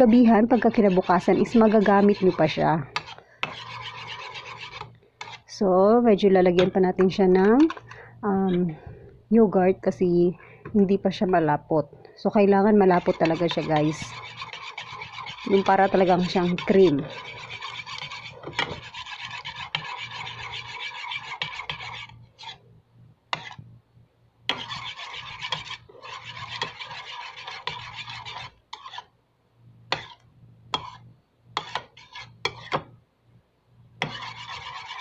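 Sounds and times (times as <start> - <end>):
metal utensil scraping a bowl: 0.0 - 5.4, 12.8 - 22.6, 23.3 - 23.6, 24.5 - 29.1, 29.9 - 30.2, 30.8 - 31.0, 31.6 - 32.8, 34.0 - 35.0.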